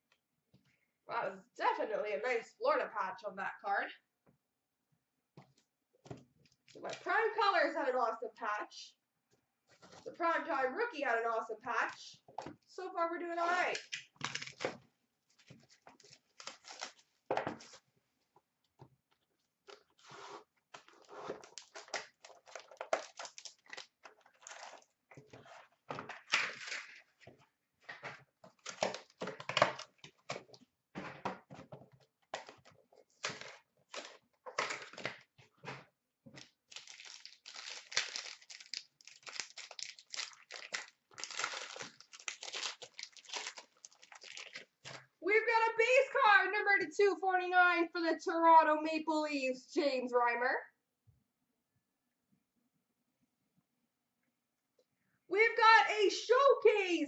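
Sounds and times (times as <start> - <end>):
foil wrapper crinkling: 13.8 - 17.2, 20.8 - 25.0, 36.4 - 45.0.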